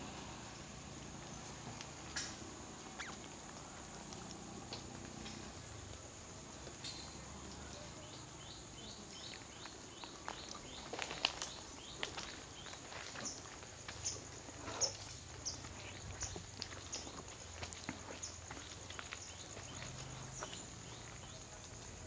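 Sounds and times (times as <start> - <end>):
small animals squeaking chirps: 2.2 - 3.3.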